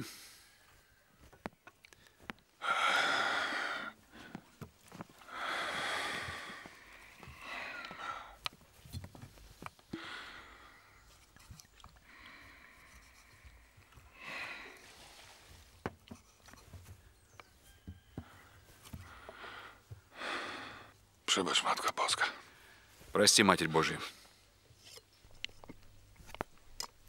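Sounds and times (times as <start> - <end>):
man breathing heavily: 1.9 - 8.5, 9.5 - 11.2, 12.0 - 15.3, 18.2 - 21.0.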